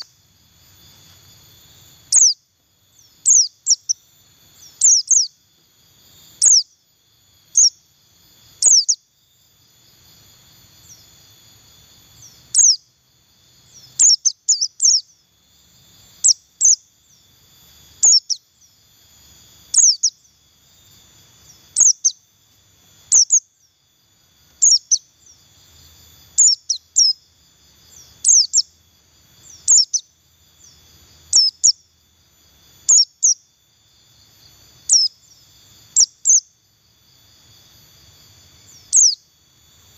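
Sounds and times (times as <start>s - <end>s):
bird giving high chirps: 2.1s - 2.4s, 3.0s - 4.0s, 4.6s - 5.4s, 6.4s - 6.7s, 8.6s - 9.0s, 12.2s - 12.8s, 18.0s - 18.4s, 19.7s - 20.2s, 21.8s - 22.2s, 24.6s - 25.1s, 26.4s - 27.2s, 27.9s - 28.7s, 29.5s - 30.1s, 31.3s - 31.8s, 34.9s - 35.1s, 38.7s - 39.2s.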